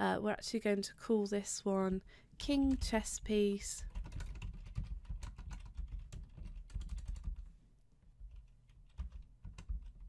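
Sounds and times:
computer keyboard typing: 3.8s - 7.5s, 8.2s - 10.0s.

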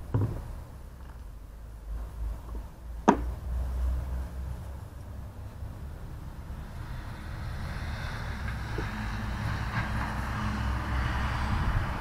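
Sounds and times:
passing vehicle hiss: 1.5s - 12.0s
wind rumbling on microphone: 3.5s - 12.0s.

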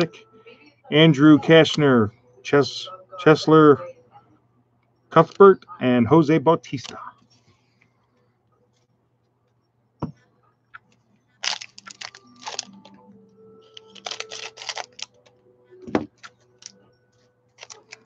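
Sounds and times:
wrapper crinkling and tearing: 11.4s - 12.9s, 13.7s - 15.3s, 17.5s - 18.0s.

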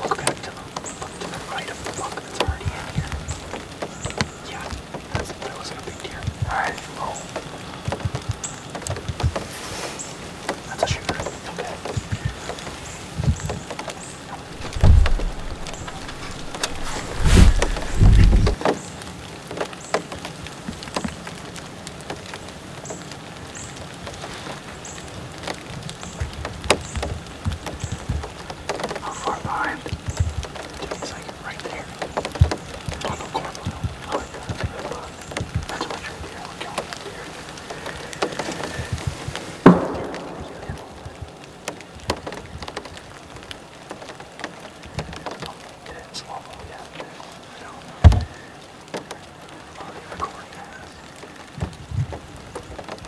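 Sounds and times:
rain pattering on leaves: 0.0s - 53.0s
sharp drips: 0.0s - 53.0s.

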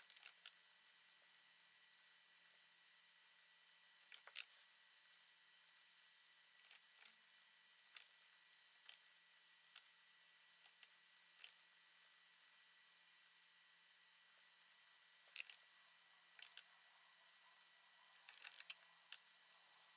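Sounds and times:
computer mouse clicks: 4.0s - 4.5s, 15.3s - 15.6s, 16.3s - 16.7s, 18.1s - 19.3s.

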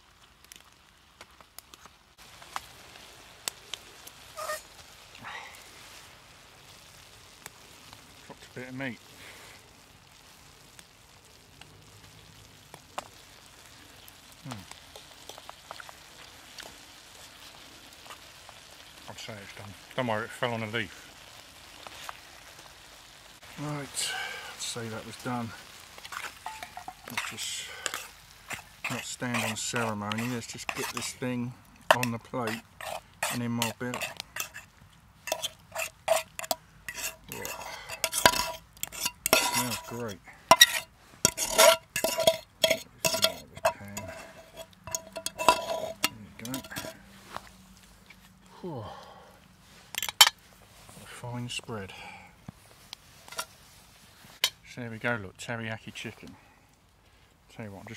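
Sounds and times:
food sizzling in a pan: 0.0s - 48.4s, 49.5s - 51.2s, 52.7s - 54.7s
fork scraping a pan: 4.4s - 4.7s, 26.0s - 31.3s, 31.9s - 47.0s, 49.9s - 50.4s, 53.2s - 53.6s.

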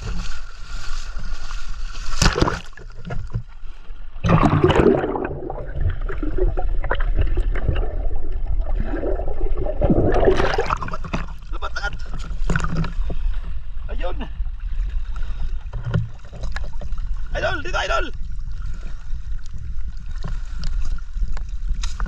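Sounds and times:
water sloshing and splashing: 0.0s - 22.0s
muffled underwater gurgling: 4.2s - 14.8s.

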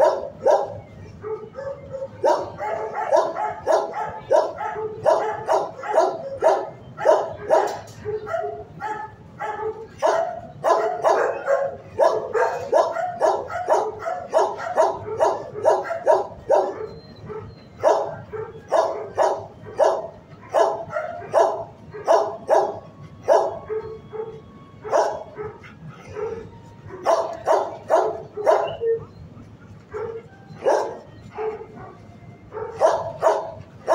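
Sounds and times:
dog barking: 0.0s - 29.1s, 29.9s - 33.9s.

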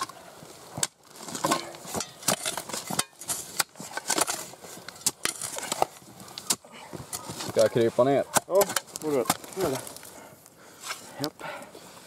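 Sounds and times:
tools scraping and clinking on stones: 1.1s - 10.1s.

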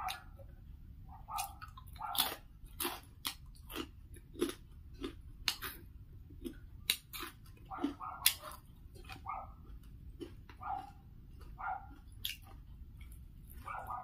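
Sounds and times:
low background hum: 0.0s - 14.0s
person chewing food: 1.2s - 14.0s.

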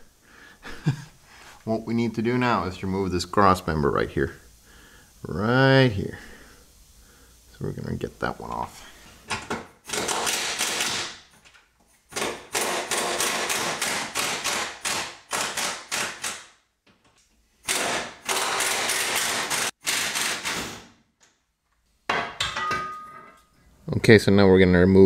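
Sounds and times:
impact wrench hammering: 9.5s - 11.2s, 12.1s - 16.5s, 17.7s - 20.6s.

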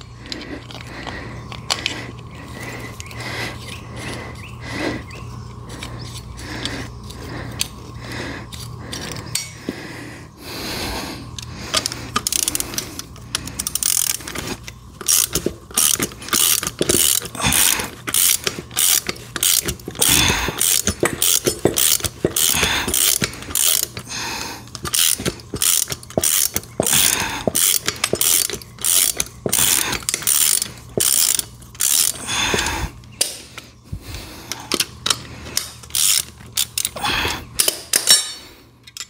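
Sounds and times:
ratchet wrench clicking: 11.3s - 33.4s, 34.5s - 39.0s.

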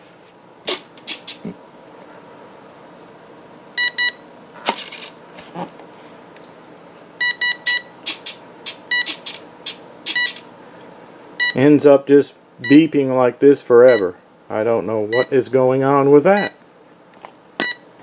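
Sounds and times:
speed controllers beeping: 3.8s - 4.2s, 7.2s - 10.5s, 11.4s - 11.6s, 12.6s - 12.9s, 13.9s - 14.1s, 15.1s - 15.4s, 16.3s - 16.6s.

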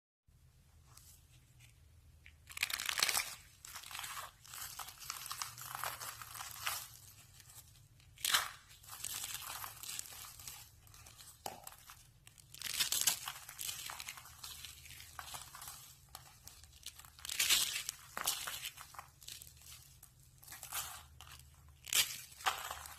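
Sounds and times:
soap curls crunching: 1.0s - 22.9s.

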